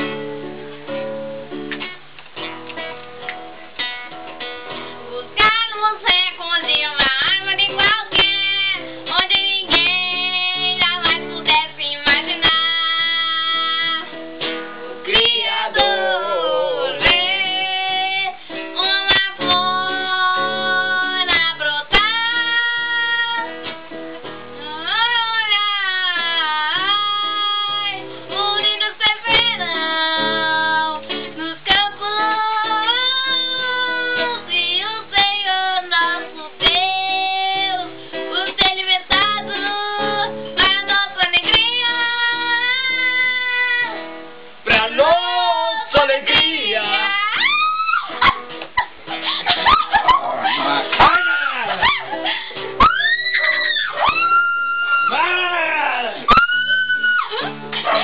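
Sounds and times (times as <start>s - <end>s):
acoustic guitar strumming: 0.0s - 58.0s
people singing together: 15.1s - 18.4s.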